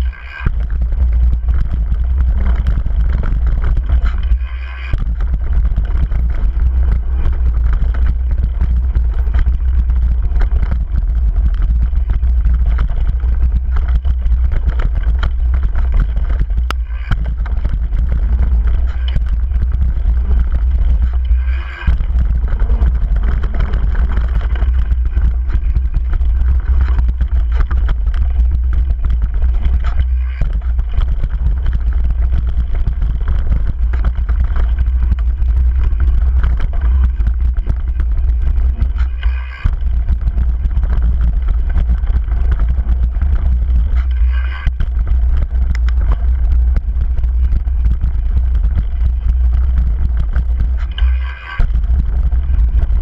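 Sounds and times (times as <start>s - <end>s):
bike trail noise: 0.0s - 53.0s
wind rumble on microphone: 0.0s - 53.0s.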